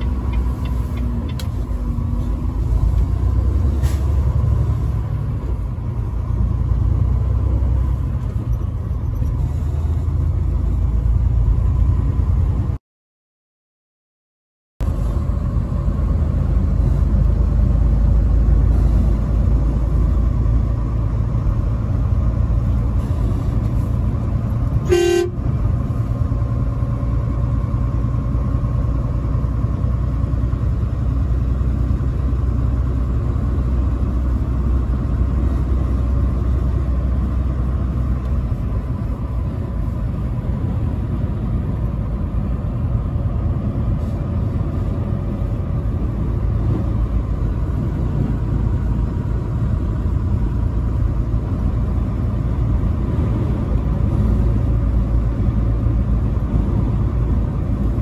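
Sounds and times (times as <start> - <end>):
truck engine and road noise: 0.0 - 12.8, 14.8 - 58.0
truck horn toot: 24.8 - 25.5.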